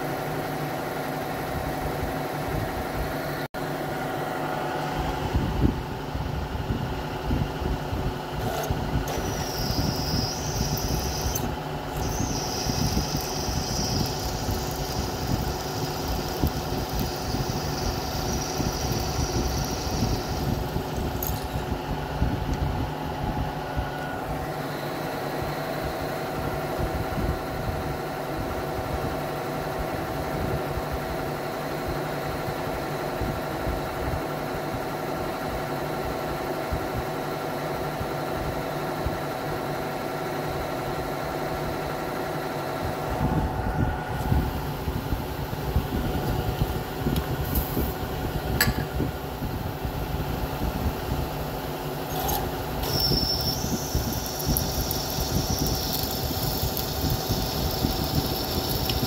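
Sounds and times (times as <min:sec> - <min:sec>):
milling machine cutting aluminium: 0:08.4 - 0:21.7, 0:52.0 - 0:59.0.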